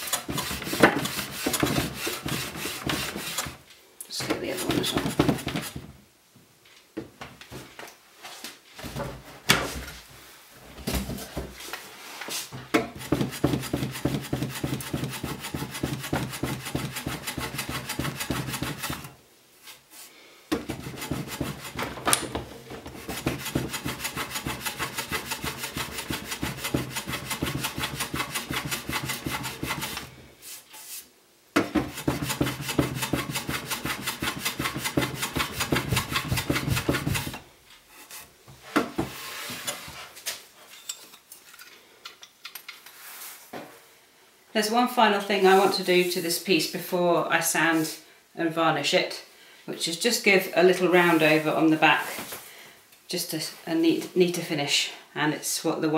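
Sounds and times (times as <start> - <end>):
hand plane scraping wood: 0.0 - 3.6, 4.2 - 5.8, 12.9 - 19.2, 20.5 - 22.0, 22.8 - 31.0, 31.7 - 38.3.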